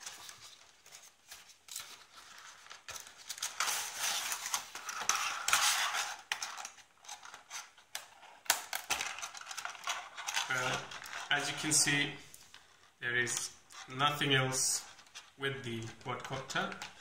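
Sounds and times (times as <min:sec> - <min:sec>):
plastic tray crinkling: 0:00.0 - 0:17.0.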